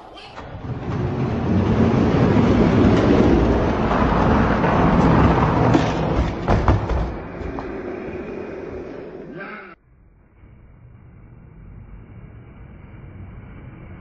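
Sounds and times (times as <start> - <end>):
toy trucks rolling down plastic track: 0.4 - 7.9
sharp knocks: 5.0 - 7.9.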